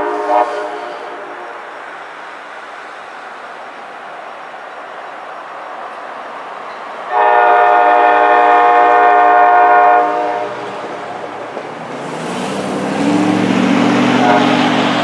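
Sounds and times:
locomotive air horn blast: 0.0s - 1.7s, 7.1s - 10.7s, 14.0s - 15.0s
train rumble: 0.0s - 15.0s.

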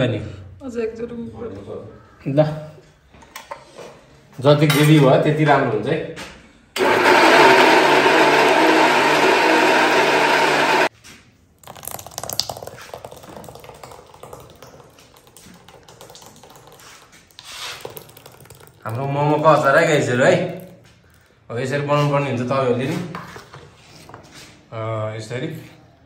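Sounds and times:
mixer grinder running: 6.8s - 10.9s.

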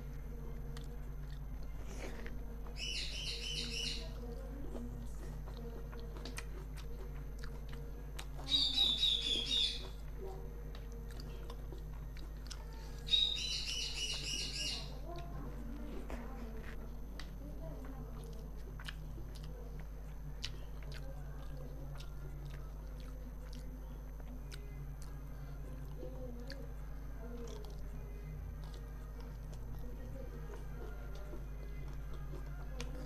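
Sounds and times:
faint chewing: 0.0s - 33.0s
steady low hum: 0.0s - 33.0s
bird trilling: 2.8s - 4.1s, 8.5s - 9.9s, 13.1s - 15.0s.

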